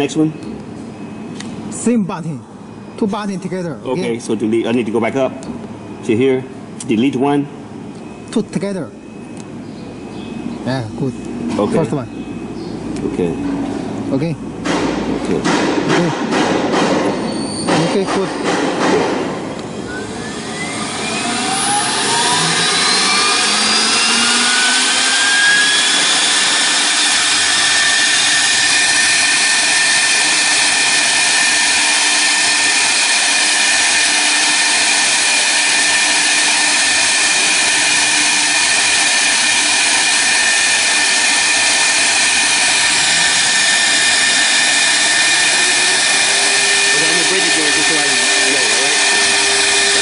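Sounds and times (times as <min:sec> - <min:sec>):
router spindle whine: 0:19.6 - 0:50.0.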